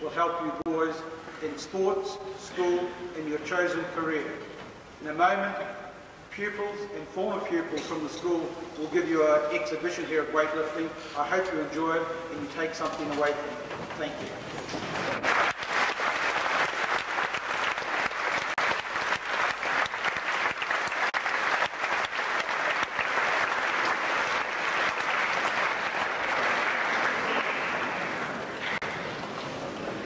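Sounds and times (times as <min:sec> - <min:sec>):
audience applauding: 0:14.6 - 0:30.0.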